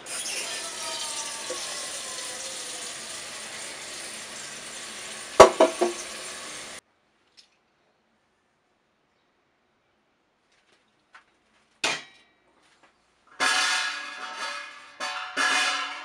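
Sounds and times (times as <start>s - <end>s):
water running into metal pot: 0.0s - 6.8s
loud metallic clanks: 1.5s - 6.6s.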